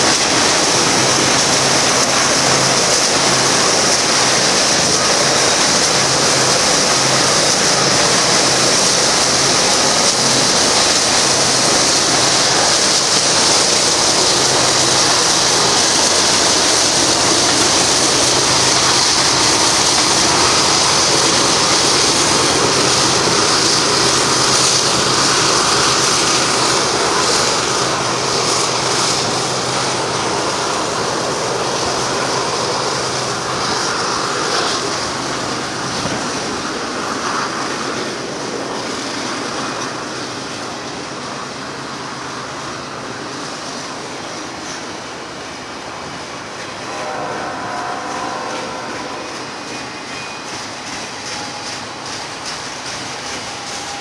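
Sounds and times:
steel wheels rolling on rail: 0:00.0 - 0:54.0.

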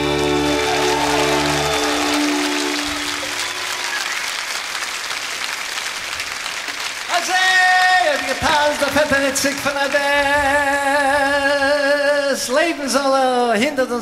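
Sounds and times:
crowd applauding: 0:00.0 - 0:10.8.

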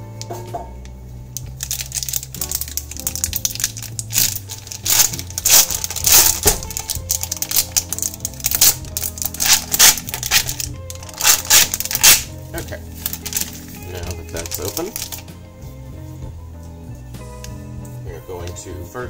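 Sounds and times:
background music: 0:00.0 - 0:19.0
foil wrapper crinkling: 0:01.4 - 0:15.3.

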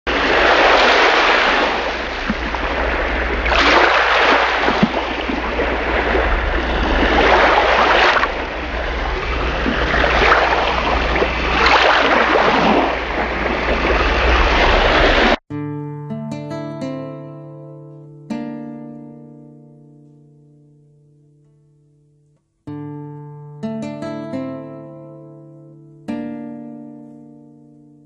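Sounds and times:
sea waves breaking: 0:00.1 - 0:15.4
steady low rumble: 0:04.4 - 0:15.4.

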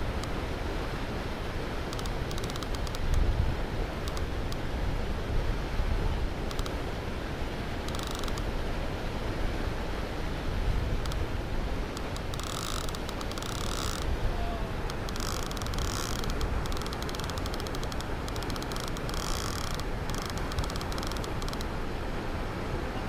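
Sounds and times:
wind rumble on microphone: 0:00.0 - 0:23.0
fishing reel clicking rapidly: 0:02.0 - 0:03.2, 0:07.9 - 0:08.5, 0:12.0 - 0:14.1, 0:14.9 - 0:21.6.

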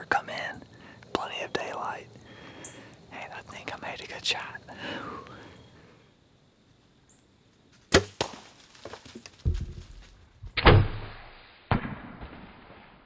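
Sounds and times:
deer crashing through dry leaves: 0:07.9 - 0:10.3.

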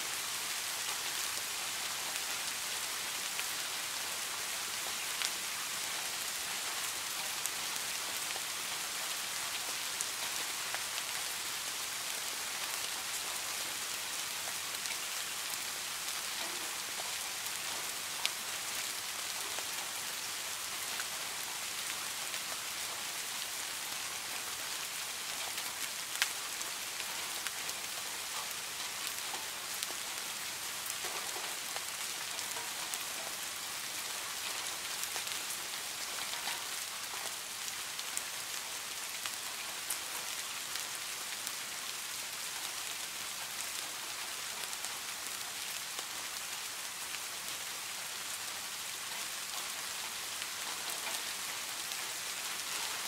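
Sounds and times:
rain on pond water: 0:00.0 - 0:53.0.

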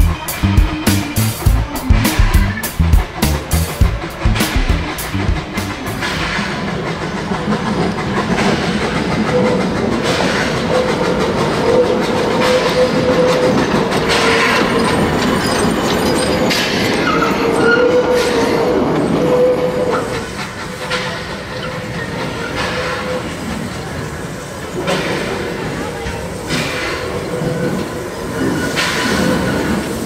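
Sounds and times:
steam locomotive hissing: 0:00.0 - 0:15.8, 0:18.1 - 0:30.0
wheels rattling on track: 0:00.0 - 0:30.0
wheel squeal: 0:12.4 - 0:20.3.

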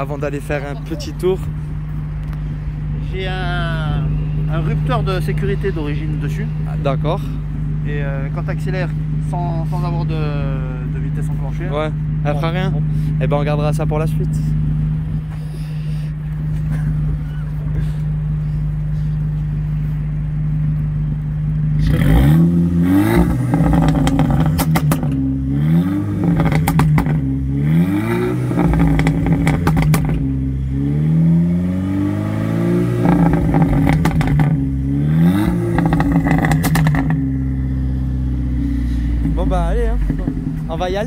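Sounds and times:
car engine idling and revving: 0:00.0 - 0:41.0
exhaust crackling pops: 0:23.2 - 0:25.4, 0:26.1 - 0:27.4, 0:28.4 - 0:30.5, 0:33.0 - 0:34.8, 0:35.4 - 0:37.6, 0:38.8 - 0:41.0.

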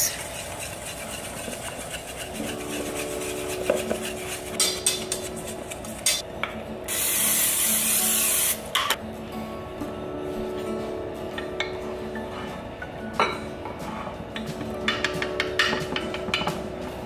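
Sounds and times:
whisk knocking against metal: 0:00.0 - 0:06.2
whisk scraping in metal bowl: 0:00.0 - 0:06.2
aerosol spray can hissing: 0:06.9 - 0:08.6.

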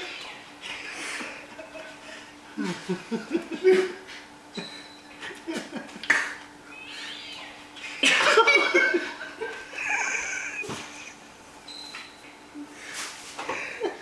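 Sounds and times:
man laughing: 0:00.6 - 0:04.2, 0:05.2 - 0:06.1, 0:08.0 - 0:11.2.

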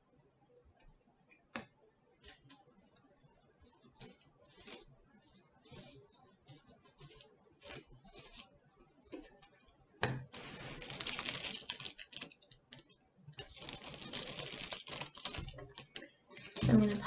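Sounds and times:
paintbrush stroking glue: 0:03.6 - 0:09.5
wax paper crinkling: 0:04.1 - 0:04.8, 0:10.4 - 0:17.0.

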